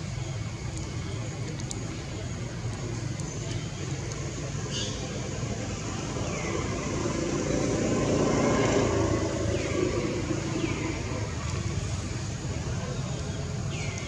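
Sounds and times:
vehicle passing: 5.6 - 12.4.

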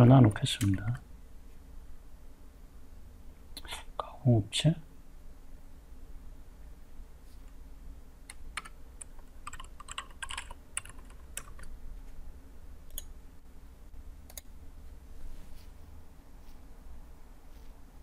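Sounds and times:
computer keyboard typing: 8.3 - 11.7.

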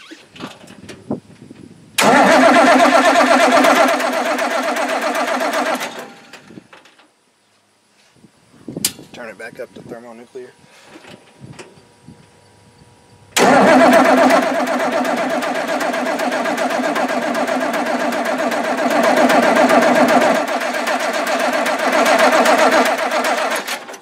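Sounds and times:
diesel engine cranking on starter: 2.0 - 6.7, 13.4 - 24.0.

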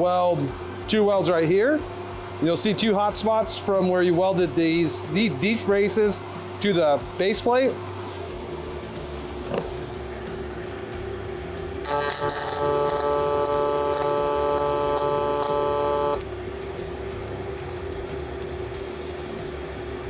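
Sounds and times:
steady hum: 0.0 - 20.0
welding arc buzzing hiss: 11.8 - 16.3.

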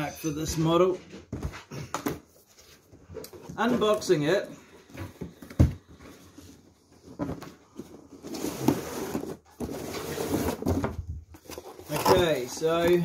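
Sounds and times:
cardboard box sliding and rustling: 8.1 - 12.4.

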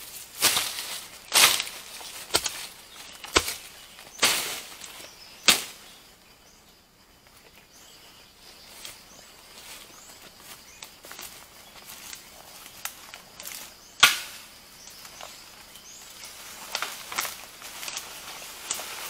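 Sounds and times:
machete slashing through undergrowth: 0.4 - 5.8.

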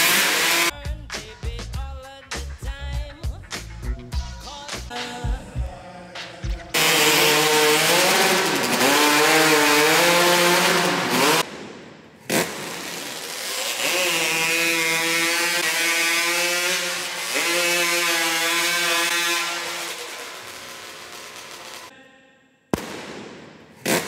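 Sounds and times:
chainsaw cutting log: 0.0 - 0.7, 6.8 - 11.5, 12.2 - 21.9.

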